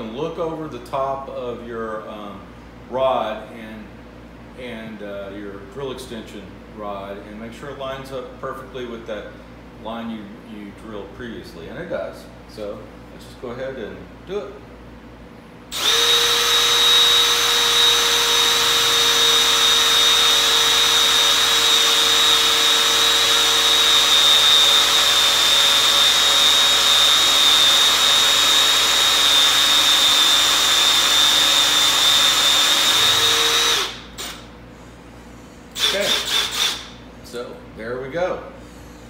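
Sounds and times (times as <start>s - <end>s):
power drill boring into wood: 15.7s - 34.4s, 35.8s - 36.9s.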